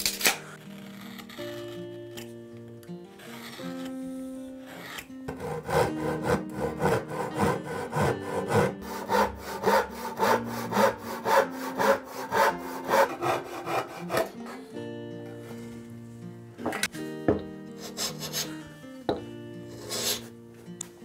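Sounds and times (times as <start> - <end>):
soft background music: 0.0 - 21.0
handsaw cutting wood: 0.6 - 1.7, 3.2 - 4.0, 4.6 - 14.7, 17.8 - 18.6, 19.7 - 20.3.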